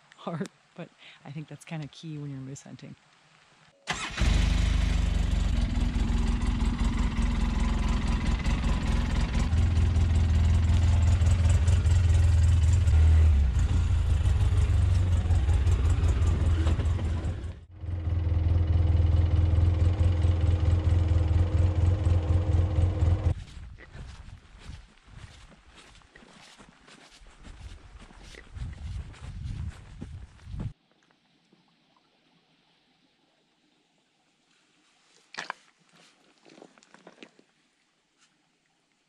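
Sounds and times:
vehicle engine running: 0:04.2 - 0:23.4.

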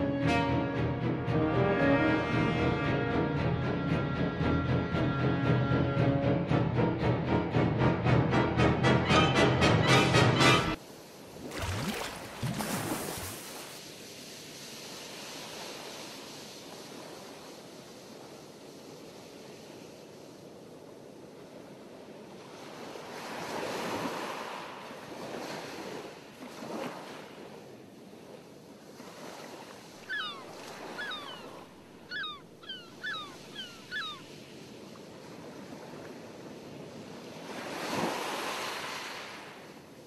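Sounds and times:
ocean waves washing on shore: 0:10.8 - 0:40.0.

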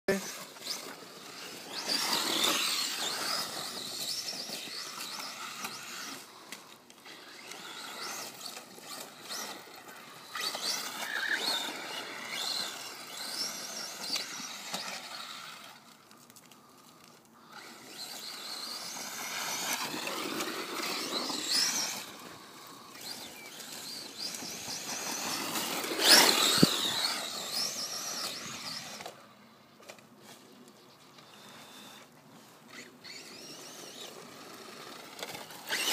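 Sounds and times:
electric motor whining: 0:00.1 - 0:15.9, 0:17.4 - 0:29.2, 0:32.7 - 0:35.9.

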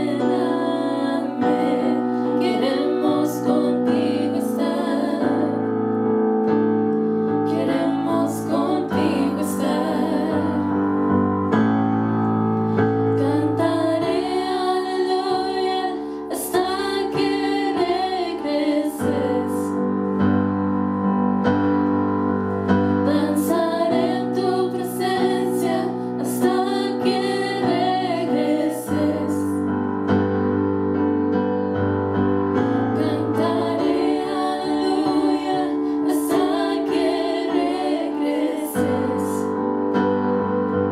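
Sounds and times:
women singing together: 0:00.0 - 0:05.7, 0:07.5 - 0:11.0, 0:13.1 - 0:19.9, 0:23.0 - 0:29.7, 0:33.0 - 0:39.6.

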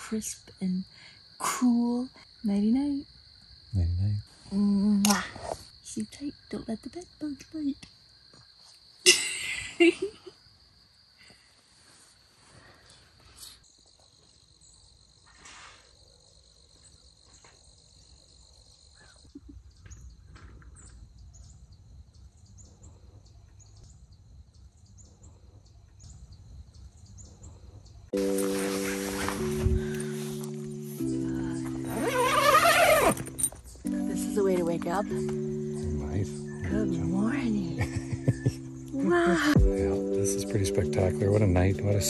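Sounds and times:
crickets chirping: 0:00.0 - 0:42.0
music: 0:28.2 - 0:42.0.

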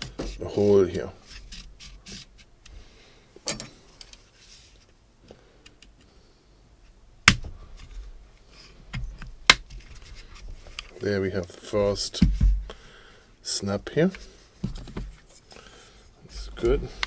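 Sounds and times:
pick tool scraping plastic: 0:00.0 - 0:02.5.

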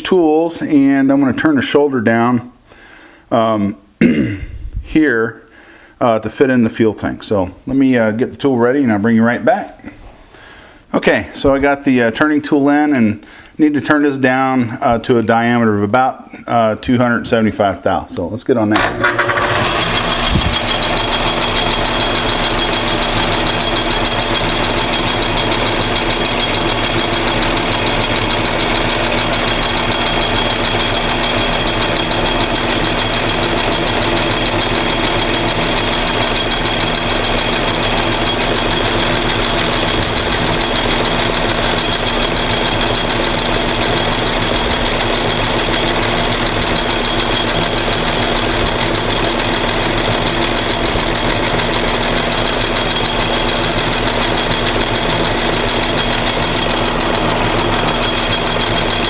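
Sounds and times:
metal lathe running: 0:18.7 - 0:59.0.

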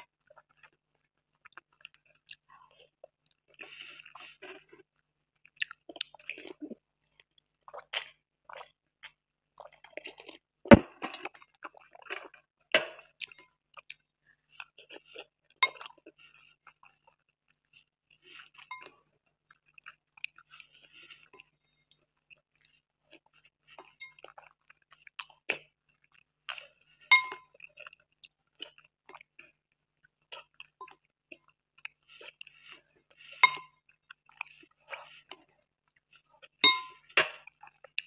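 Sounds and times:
chewing and mouth sounds: 0:00.0 - 0:21.6, 0:22.2 - 0:38.0
spoon clinking against glass bowl: 0:27.1 - 0:27.4, 0:36.6 - 0:37.0.

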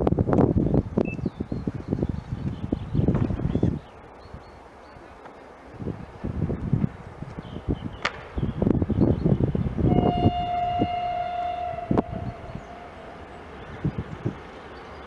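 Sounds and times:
wind buffeting microphone: 0:00.0 - 0:15.0
railcar horn blast: 0:09.9 - 0:13.5.

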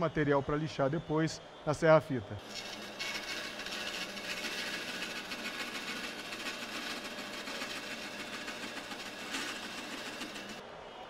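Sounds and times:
band saw cutting wood: 0:02.4 - 0:10.6.

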